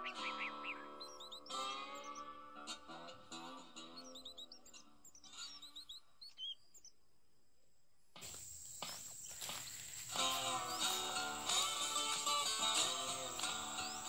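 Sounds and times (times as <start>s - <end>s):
acoustic guitar music: 0.0s - 5.8s, 10.0s - 14.0s
birds chirping: 0.0s - 7.2s, 8.2s - 14.0s
high insect whine: 8.2s - 14.0s.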